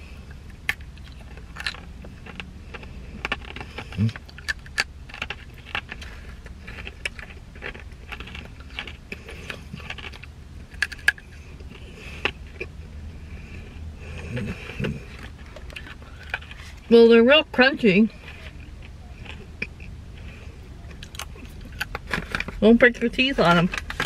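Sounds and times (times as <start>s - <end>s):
low steady hum: 0.0s - 24.0s
crunchy snacks being chewed: 0.3s - 12.8s, 13.4s - 16.8s, 18.1s - 22.6s
snack bag crinkling: 0.7s - 11.3s.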